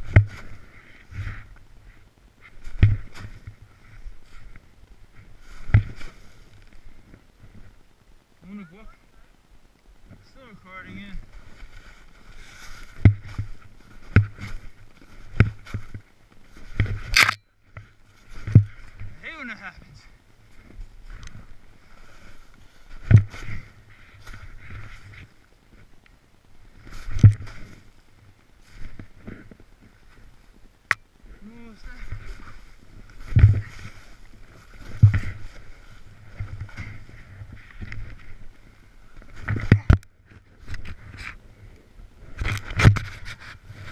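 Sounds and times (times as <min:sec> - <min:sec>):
dull thumps on snow: 0:00.0 - 0:00.6, 0:02.6 - 0:03.6, 0:12.7 - 0:17.2, 0:18.2 - 0:19.2, 0:23.0 - 0:25.3, 0:31.6 - 0:37.4
crunchy scrape on snow: 0:05.2 - 0:06.8, 0:10.4 - 0:17.3, 0:20.5 - 0:25.4, 0:26.7 - 0:28.0, 0:31.4 - 0:39.9
boots thudding in deep snow: 0:31.6 - 0:37.4
clothing rustling: 0:31.7 - 0:41.4.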